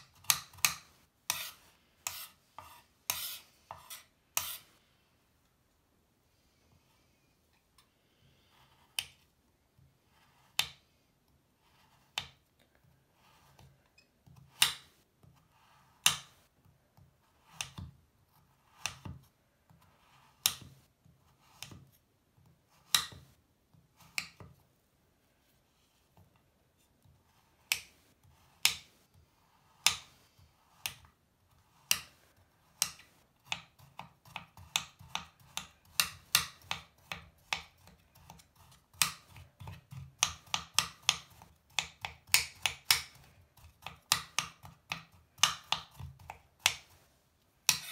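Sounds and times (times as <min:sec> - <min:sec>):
knife slicing soap bar: 0:00.0 - 0:04.7, 0:31.8 - 0:47.0.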